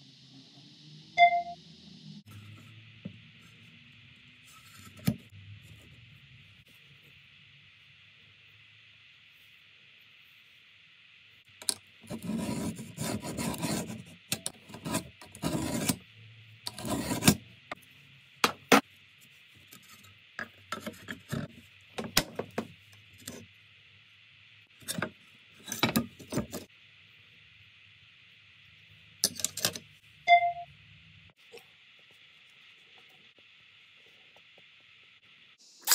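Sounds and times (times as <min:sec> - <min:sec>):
steel scraping along metal ruler: 0:12.1 - 0:16.0, 0:16.7 - 0:17.4.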